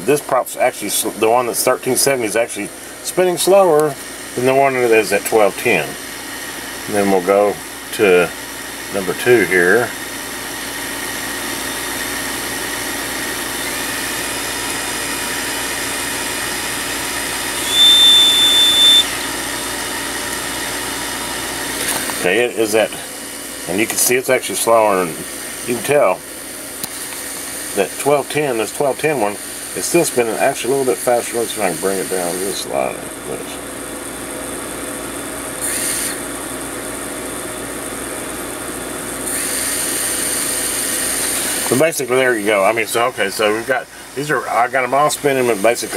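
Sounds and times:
high motor whine: 0:00.0 - 0:45.9
quadcopter motors whirring: 0:13.3 - 0:19.6, 0:30.7 - 0:33.5, 0:35.6 - 0:36.3, 0:39.3 - 0:41.8.

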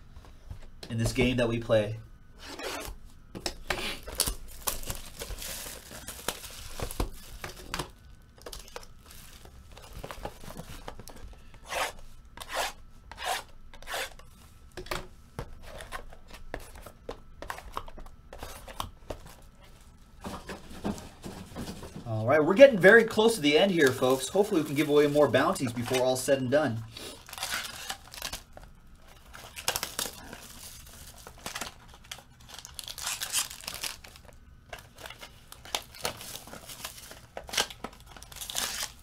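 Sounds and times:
card packs tearing: 0:03.6 - 0:12.6, 0:22.9 - 0:39.0.

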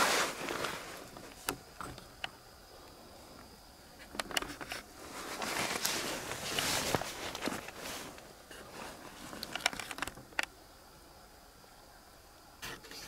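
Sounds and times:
rustling and crackling: 0:00.0 - 0:10.5
faint high whine: 0:00.0 - 0:13.0.

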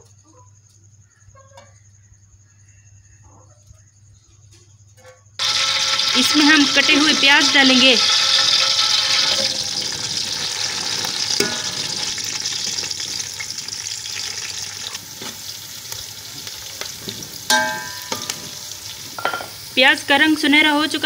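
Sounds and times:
spoon scraping a pot: 0:05.4 - 0:12.8, 0:17.0 - 0:18.6
onions sizzling in a pot: 0:05.4 - 0:21.0.

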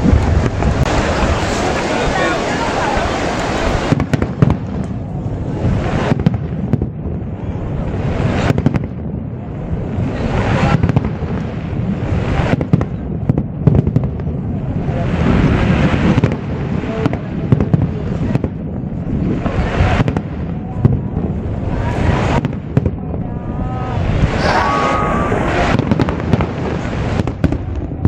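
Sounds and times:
fireworks bangs: 0:00.0 - 0:02.0, 0:03.1 - 0:23.3, 0:23.9 - 0:28.0
low rumble: 0:23.0 - 0:26.3.

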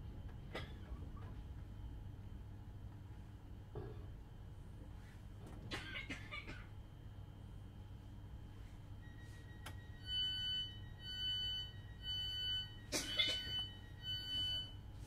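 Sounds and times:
train carriage running hum: 0:00.0 - 0:15.0
two-tone warning beep: 0:09.0 - 0:14.9.

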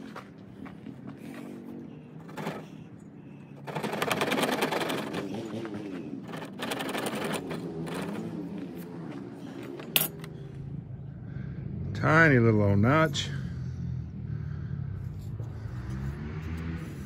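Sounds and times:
knife sawing wood: 0:02.2 - 0:02.9, 0:03.6 - 0:08.4, 0:15.0 - 0:17.0.

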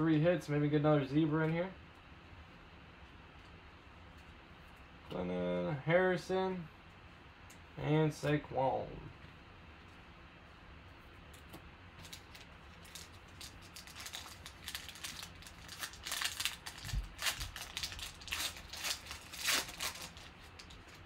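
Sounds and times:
wrapper crinkling: 0:12.0 - 0:21.0.

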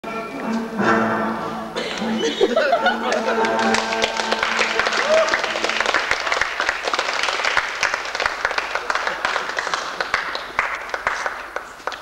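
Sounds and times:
crowd applauding: 0:02.8 - 0:12.0.

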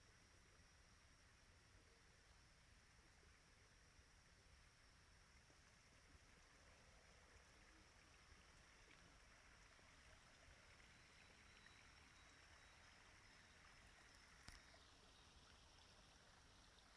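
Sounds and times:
soft even hiss: 0:00.0 - 0:16.9
faint thin high tone: 0:10.9 - 0:14.8
faint click: 0:14.1 - 0:14.8.

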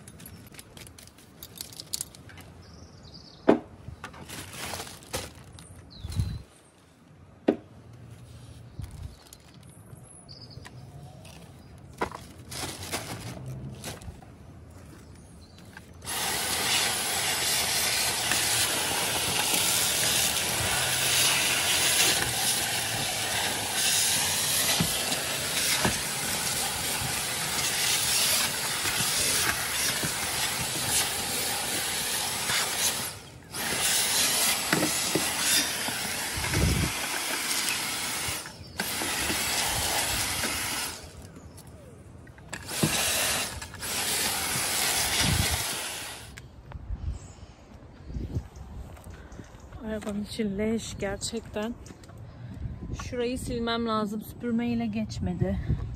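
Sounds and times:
cordless vacuum whooshing hiss: 0:16.1 - 0:41.1, 0:42.6 - 0:46.4.

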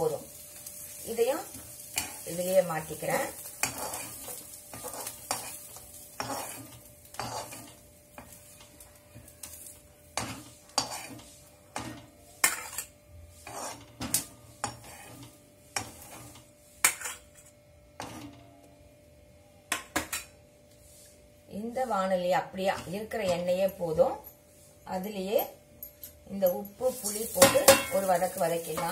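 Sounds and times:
steel spatula scraping a pan: 0:00.0 - 0:18.4, 0:26.8 - 0:28.9.

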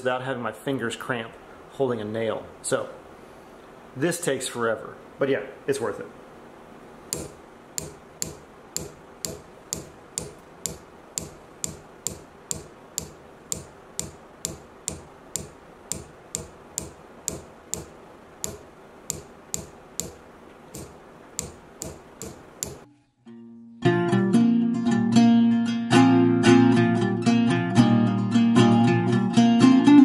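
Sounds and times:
hammer tapping nail into wood: 0:07.2 - 0:22.8.

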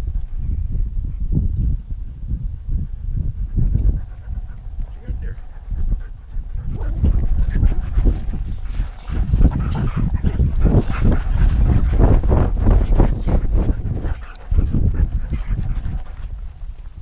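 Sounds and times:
low rumble of camera jostling: 0:00.0 - 0:17.0
wind on microphone: 0:00.0 - 0:17.0
dog panting: 0:03.3 - 0:16.7.

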